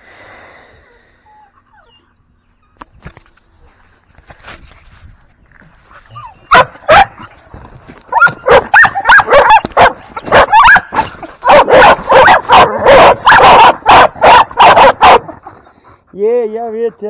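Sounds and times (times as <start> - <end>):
puppies barking: 6.1 - 7.4, 8.0 - 15.8.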